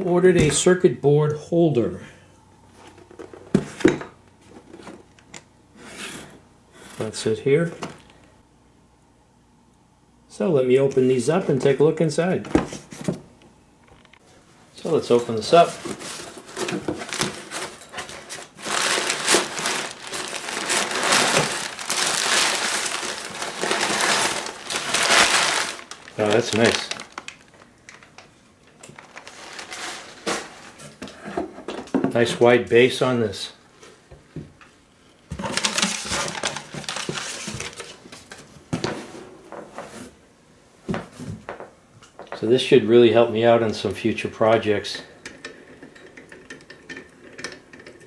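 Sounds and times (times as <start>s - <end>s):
packing paper rustling: 14.8s - 30.8s, 35.3s - 38.9s.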